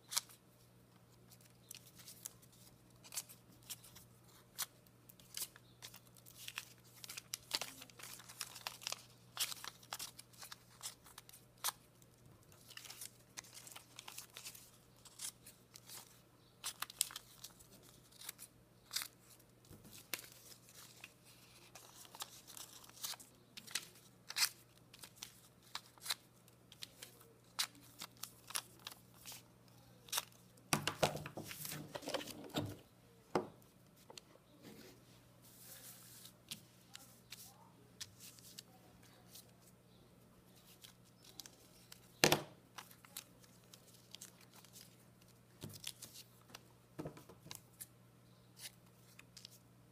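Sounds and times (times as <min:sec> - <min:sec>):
paper rustling and crinkling: 0:01.3 - 0:29.4, 0:30.0 - 0:32.8, 0:42.8 - 0:46.6
paper rubbing and shuffling: 0:34.6 - 0:39.5.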